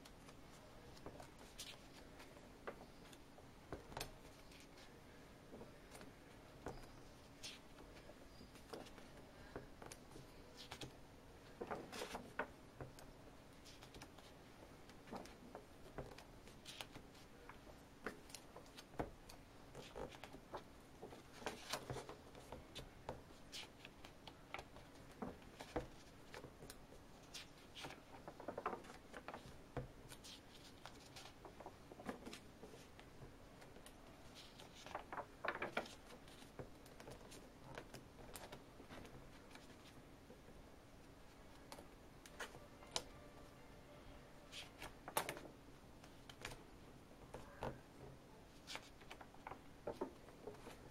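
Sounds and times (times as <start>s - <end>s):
faint steady hum: 0.0s - 50.9s
paper pages rustling: 5.8s - 13.0s, 13.6s - 22.8s, 23.4s - 40.0s, 48.5s - 50.9s.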